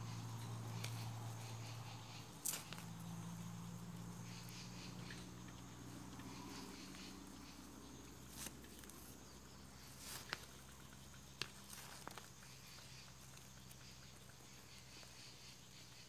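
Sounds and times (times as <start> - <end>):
low steady hum: 0.0 - 16.0
light sharp clicks and rustles: 0.3 - 3.2.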